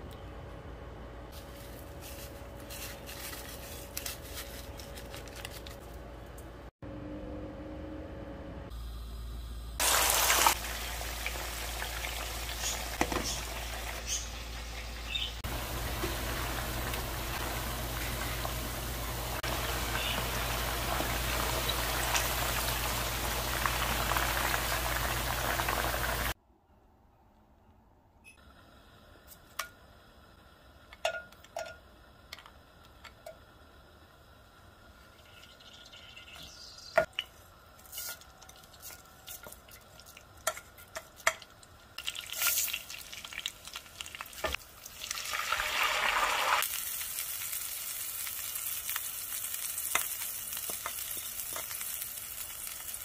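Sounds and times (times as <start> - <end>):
low hum: 5.8 - 9.8
chicken deep-frying in hot oil: 8.9 - 26.4, 29.0 - 53.0.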